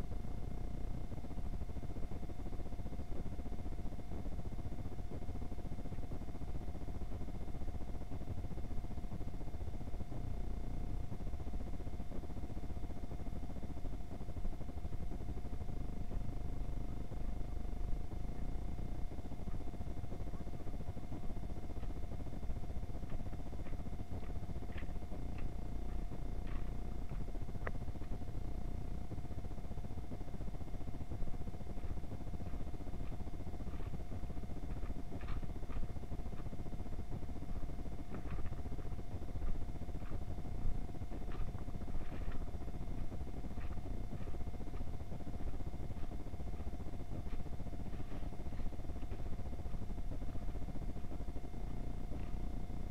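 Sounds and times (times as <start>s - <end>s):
faint electronic whine: 0.0s - 52.9s
low rumble and hiss: 0.0s - 52.9s
faint ticks: 18.3s - 52.9s.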